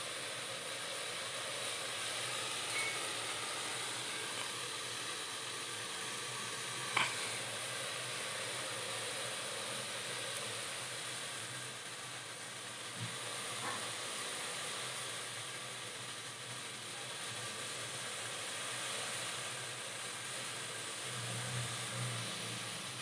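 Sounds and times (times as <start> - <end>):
water boiling in a steel pot: 0.0 - 23.0.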